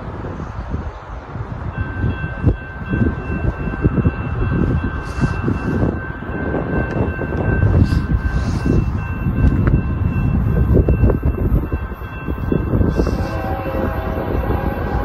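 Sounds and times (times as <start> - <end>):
wind buffeting microphone: 0.0 - 15.0
distant train horn: 12.9 - 15.0.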